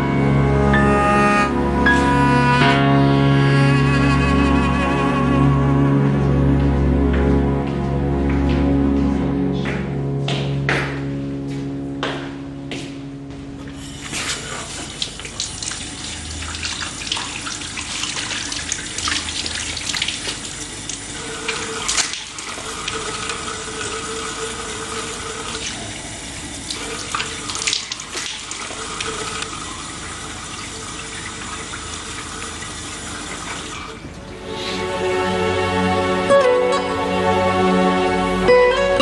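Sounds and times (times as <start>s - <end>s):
kitchen tap running: 13.8s - 34.4s
water splashing over greens: 14.0s - 24.1s, 25.5s - 33.8s.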